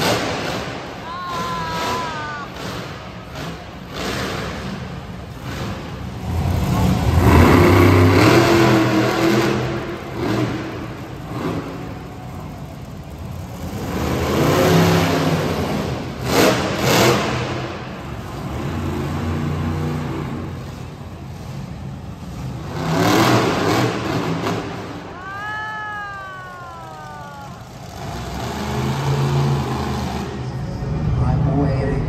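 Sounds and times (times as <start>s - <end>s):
truck engine revving: 0.0s - 25.3s, 26.6s - 32.0s.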